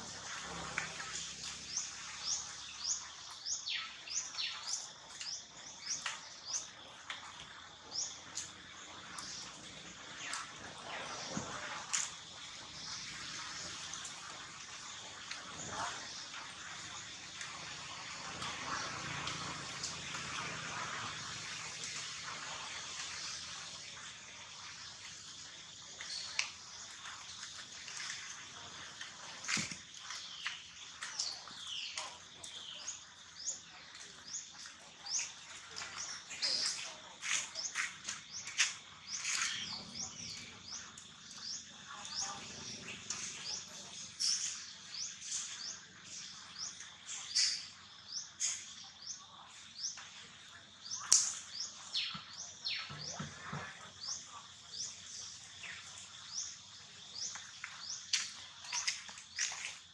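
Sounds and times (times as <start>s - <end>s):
steady outdoor hiss: 0.0s - 59.9s
rustling of dry leaves: 24.9s - 40.8s, 57.1s - 59.9s
loud sharp bird calls: 35.1s - 45.9s.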